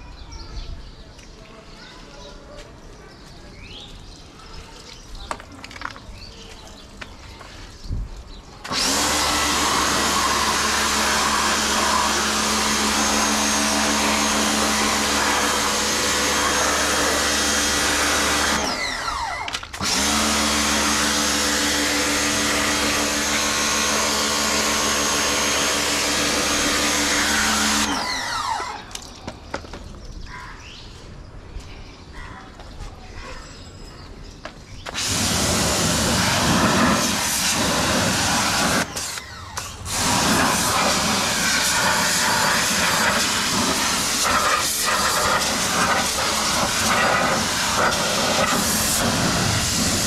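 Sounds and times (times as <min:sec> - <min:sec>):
pressure washer motor hum: 0:08.6 - 0:29.1, 0:34.9 - 0:50.0
water jet hissing: 0:08.7 - 0:18.8, 0:34.9 - 0:50.0.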